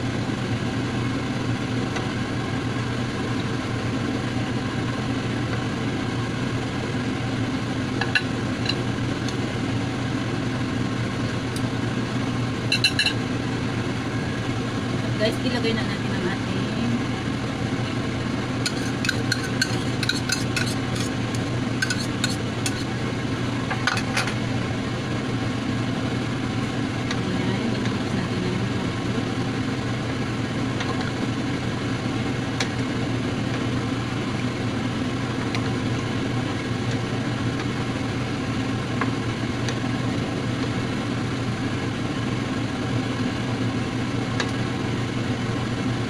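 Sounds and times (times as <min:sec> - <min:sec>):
steady low hum: 0:00.0 - 0:46.0
bowl clinking against metal pot: 0:12.7 - 0:13.2, 0:18.6 - 0:21.1.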